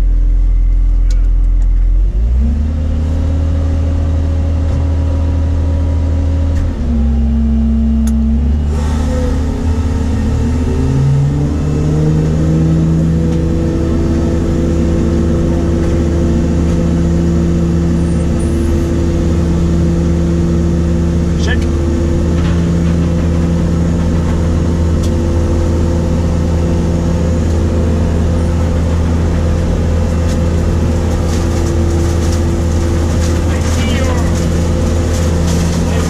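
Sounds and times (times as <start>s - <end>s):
harvester engine drone: 0.0s - 36.0s.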